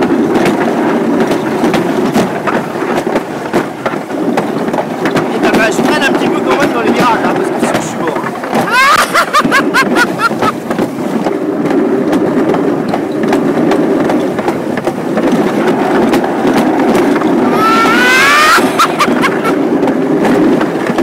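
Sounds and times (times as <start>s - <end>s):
sled clacking over track joints: 0.0s - 21.0s
sled rolling rumble: 0.0s - 21.0s
rising squeal: 17.4s - 19.2s.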